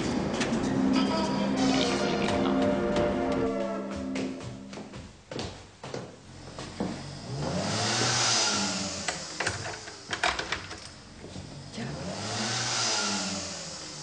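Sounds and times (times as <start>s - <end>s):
motor rising and falling: 6.5s - 14.0s
hiss: 7.3s - 10.8s, 12.0s - 14.0s.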